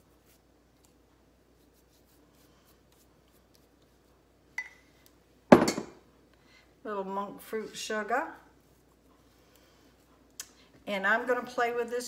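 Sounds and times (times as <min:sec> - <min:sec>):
pastry brush scratching dough: 0:00.0 - 0:04.3, 0:08.4 - 0:10.2
knock: 0:05.5 - 0:05.9.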